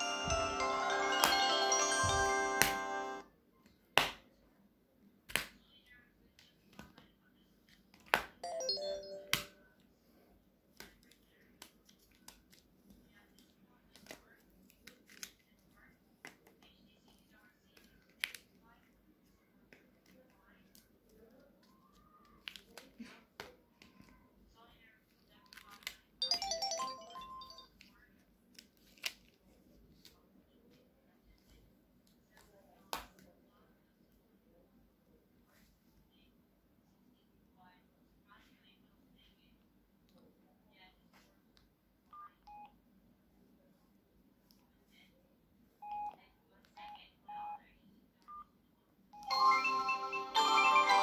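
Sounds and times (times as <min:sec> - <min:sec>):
phone electronic jingle: 0:00.0 - 0:03.2, 0:08.4 - 0:09.5, 0:26.2 - 0:27.7, 0:49.2 - 0:51.0.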